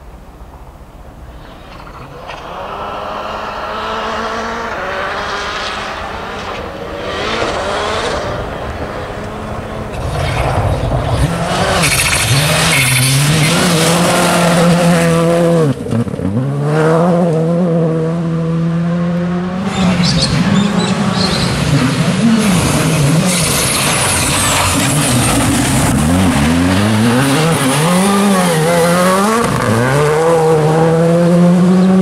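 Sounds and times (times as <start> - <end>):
rally car engine at high revs: 2.1 - 32.0
gravel hiss from tyres: 23.2 - 28.2.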